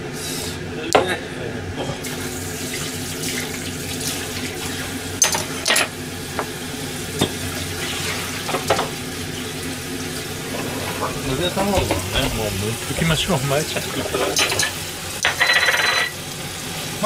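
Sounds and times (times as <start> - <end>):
dishes and utensils clinking: 5.2 - 6.0, 10.4 - 16.2.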